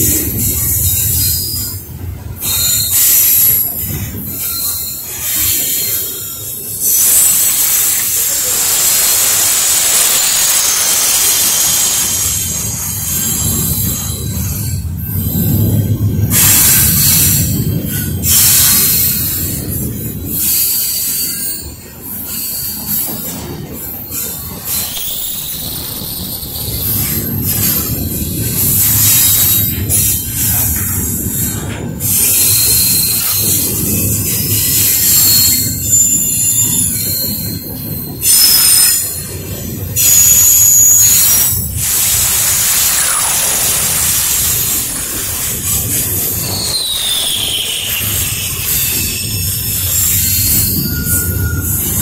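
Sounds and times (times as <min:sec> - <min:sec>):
freight train wheels rumbling: 0:00.0 - 0:52.0
hissing screech: 0:02.4 - 0:15.5, 0:28.7 - 0:39.3, 0:40.0 - 0:52.0
high-pitched wheel squeal: 0:32.0 - 0:39.3, 0:40.0 - 0:52.0.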